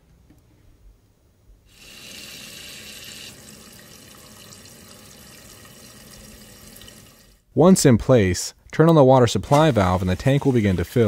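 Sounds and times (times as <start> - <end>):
water rushing into toilet tank: 1.7 - 7.4.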